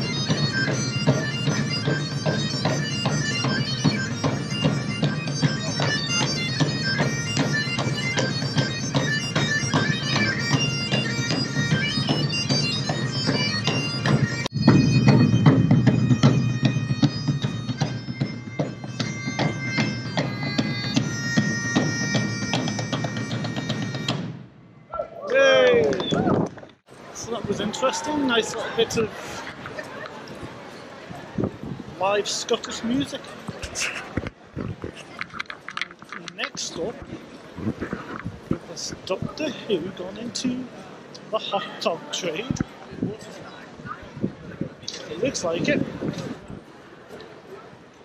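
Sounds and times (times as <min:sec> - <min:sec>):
bagpipes playing a tune: 0:00.0 - 0:24.3
large drums beating: 0:00.0 - 0:24.4.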